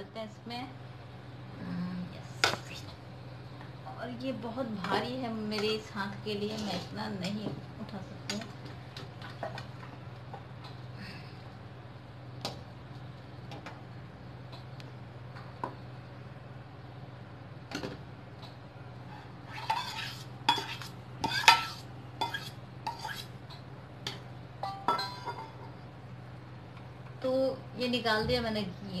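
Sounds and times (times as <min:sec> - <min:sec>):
faint low hum: 0:00.0 - 0:29.0
metal spoon scraping steel bowl: 0:19.2 - 0:23.3
spoon clinking against steel bowl: 0:24.6 - 0:25.5.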